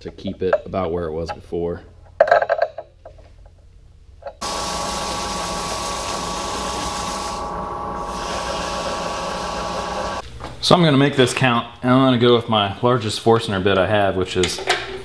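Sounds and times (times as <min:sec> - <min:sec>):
wood lathe motor whine: 0:04.4 - 0:10.2.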